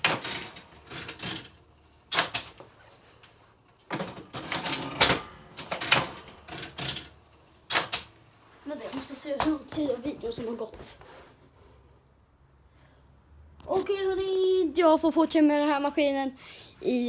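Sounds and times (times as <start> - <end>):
fruit machine clattering: 3.9 - 8.1.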